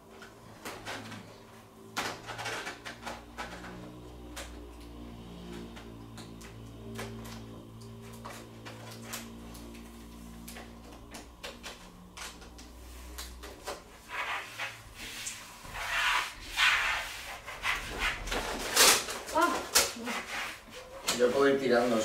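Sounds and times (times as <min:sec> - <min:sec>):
vinyl sheet peeling: 0:02.0 - 0:22.0
crackling rustles of vinyl sheet: 0:07.0 - 0:22.0.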